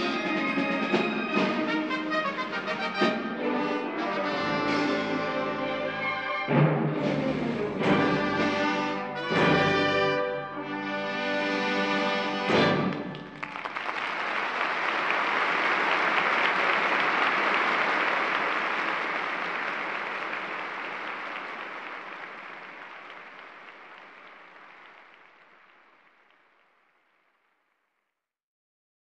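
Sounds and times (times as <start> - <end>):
audience applause: 12.5 - 27.7.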